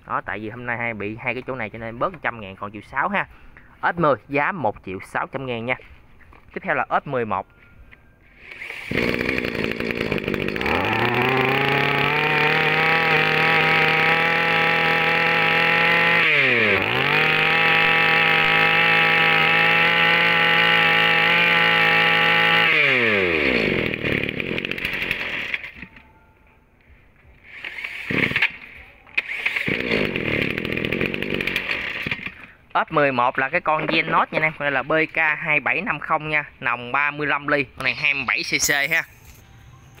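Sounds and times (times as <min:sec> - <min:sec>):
brush cutter engine running: 0:08.4 - 0:25.9, 0:27.5 - 0:32.5.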